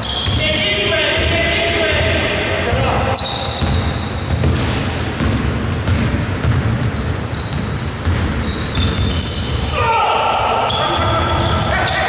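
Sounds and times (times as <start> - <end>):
basketball dribbling: 0.0 - 9.5
sneakers squeaking: 0.0 - 12.0.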